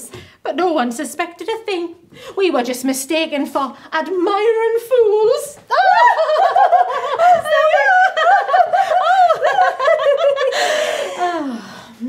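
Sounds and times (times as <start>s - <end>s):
women giggling: 5.7s - 11.5s.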